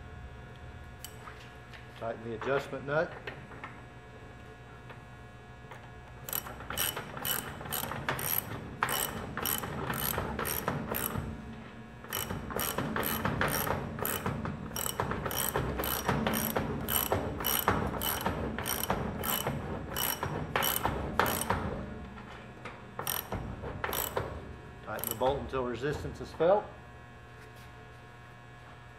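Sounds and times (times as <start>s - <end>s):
ratchet wrench clicking: 6.3s - 11.2s, 12.1s - 21.5s, 23.0s - 23.3s, 23.9s - 24.2s, 25.0s - 25.3s.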